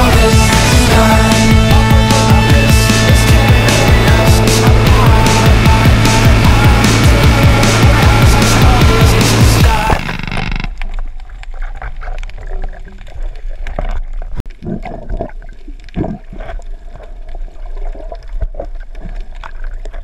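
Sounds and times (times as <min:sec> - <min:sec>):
loud music: 0:00.0 - 0:10.3
dull knocks and gurgles: 0:00.0 - 0:20.0
underwater water rush: 0:00.0 - 0:20.0.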